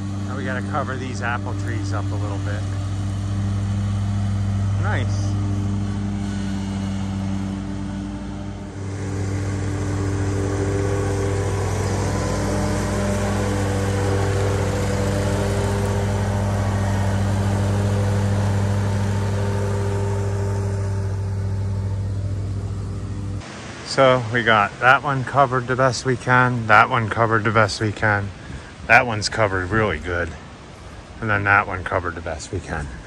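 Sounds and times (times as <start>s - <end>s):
lawn mower engine running: 0.0s - 23.5s.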